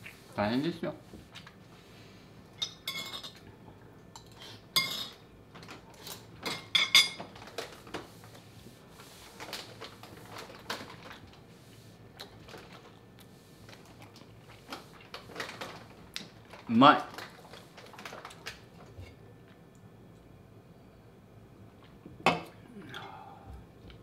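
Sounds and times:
cutlery clinking against a dish: 4.2 - 5.2.

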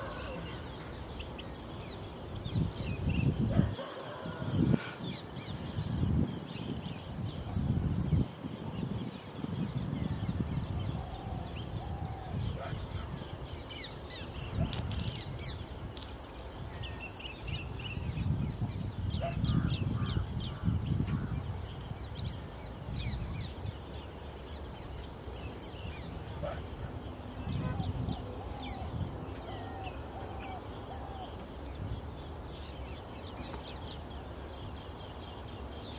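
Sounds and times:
insects trilling: 0.0 - 35.9.

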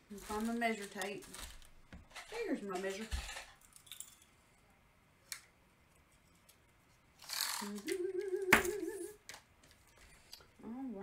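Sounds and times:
person humming: 7.6 - 9.2, 10.6 - 11.0.

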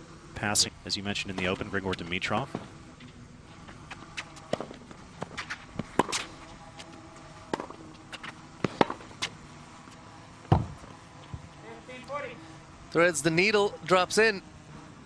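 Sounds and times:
tennis ball struck by rackets: 3.8 - 9.4.

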